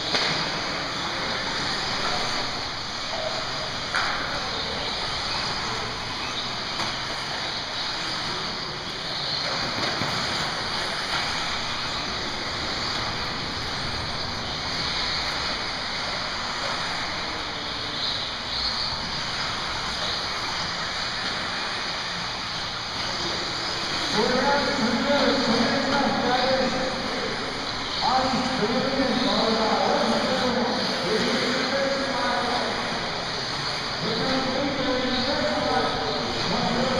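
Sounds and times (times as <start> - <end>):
radio-controlled cars motor whine: 0.0 - 36.9.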